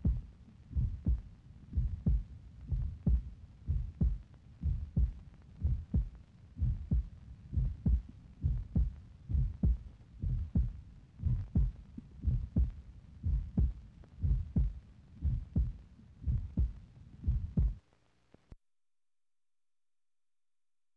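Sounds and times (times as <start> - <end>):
heartbeat-like thumping: 0.0 - 17.8.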